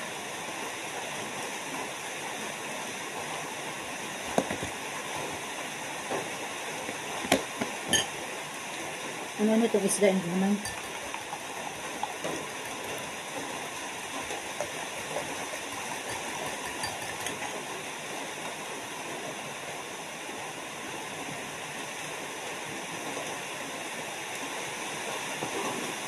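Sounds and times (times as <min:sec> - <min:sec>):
metal spoon clicking: 0:10.6 - 0:11.3, 0:15.7 - 0:17.4.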